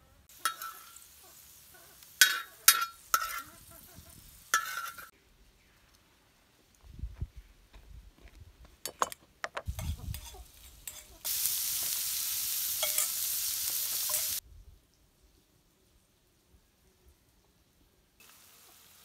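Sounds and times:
food sizzling in hot oil: 0.3s - 5.1s, 9.7s - 14.4s, 18.2s - 19.0s
utensil scraping in pan: 0.3s - 5.1s, 9.7s - 14.4s.

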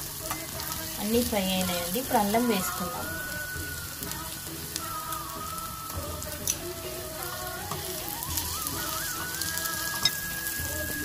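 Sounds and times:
soft background music: 0.0s - 11.0s
vegetables sizzling in oil: 0.0s - 11.0s.

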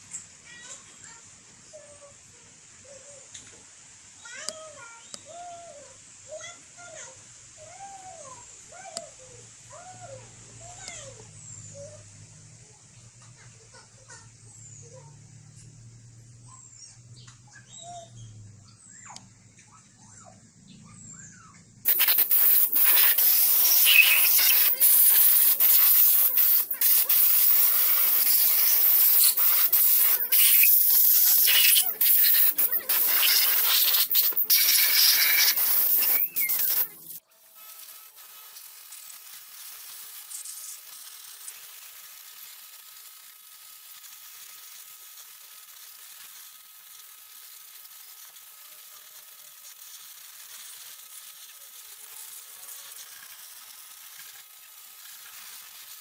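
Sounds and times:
faint steady hiss: 0.0s - 17.4s, 21.8s - 56.0s
high-pressure spraying hiss: 21.8s - 37.2s, 38.2s - 56.0s.

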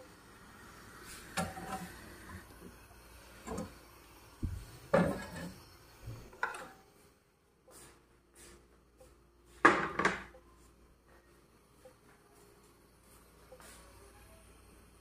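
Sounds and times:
cookware knocking and clattering: 9.6s - 10.3s.

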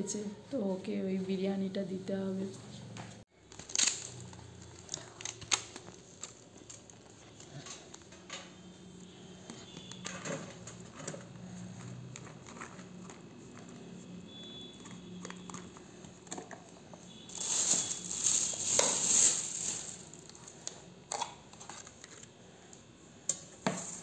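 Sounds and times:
plastic packaging crinkling: 3.3s - 8.1s, 11.8s - 22.3s.

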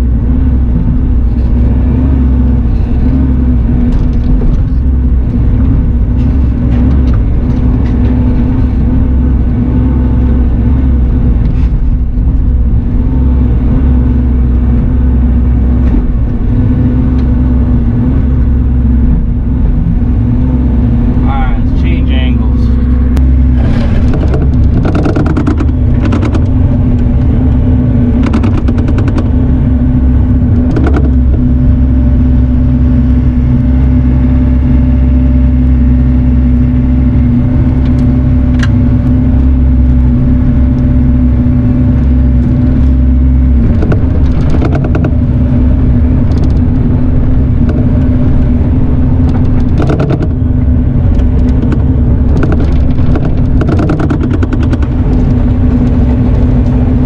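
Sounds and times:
diesel engine running: 0.0s - 57.0s
machine clanks and rattles: 49.2s - 50.4s, 51.1s - 55.4s.

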